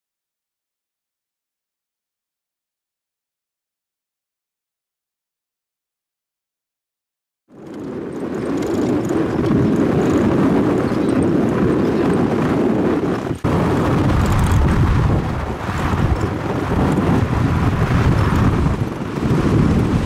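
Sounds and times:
vehicle engine and road noise: 7.5 - 20.0
wind buffeting microphone: 7.5 - 20.0.

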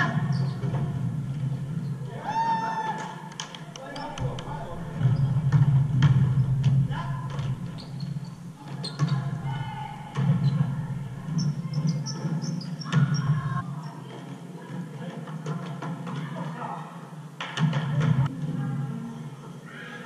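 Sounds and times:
basketball bouncing: 4.0 - 12.3
sneakers squeaking on court: 7.7 - 9.4.

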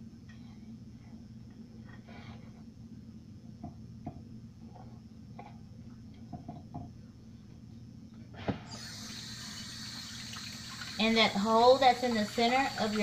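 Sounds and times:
steady low hum: 0.0 - 13.0
faucet running: 8.7 - 13.0.

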